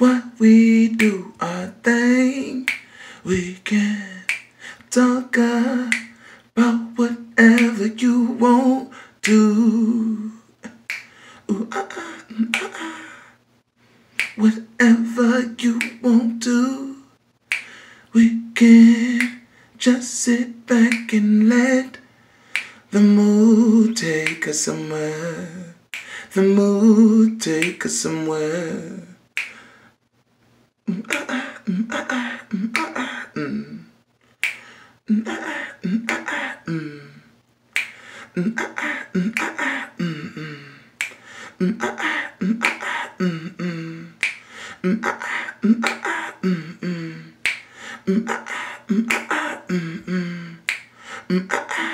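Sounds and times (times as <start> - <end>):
person singing unaccompanied: 0.0 - 13.4, 14.2 - 29.7, 30.8 - 51.9
finger snaps: 0.9 - 1.4, 2.4 - 6.3, 7.4 - 8.0, 9.2 - 9.5, 10.6 - 11.2, 12.5 - 13.0, 14.2 - 14.5, 15.7 - 16.1, 17.5 - 17.8, 18.9 - 19.5, 20.8 - 21.2, 22.5 - 22.8, 24.2 - 24.6, 25.9 - 26.2, 27.5 - 27.9, 29.4 - 29.8, 34.3 - 34.8, 37.7 - 39.9, 41.0 - 43.2, 44.2 - 46.4, 47.4 - 49.8, 50.6 - 51.9.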